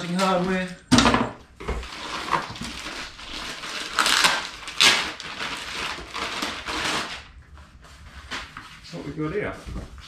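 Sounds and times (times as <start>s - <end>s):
packaging crinkling and rustling: 1.8s - 7.3s.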